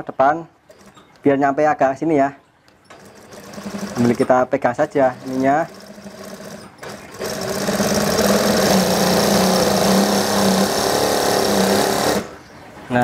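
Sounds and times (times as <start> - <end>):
sewing machine running: 2.9 - 12.4.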